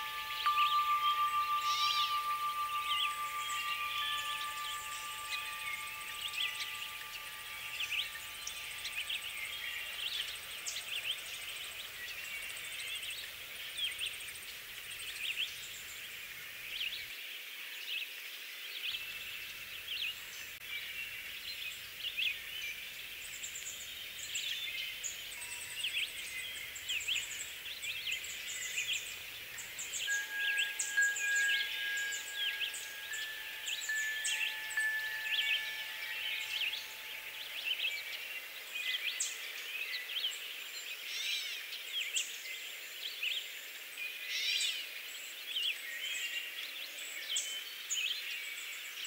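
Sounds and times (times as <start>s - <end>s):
steady hiss: 0.0s - 17.0s, 19.2s - 38.9s
songbirds chirping and trilling: 0.0s - 17.1s, 19.0s - 42.4s.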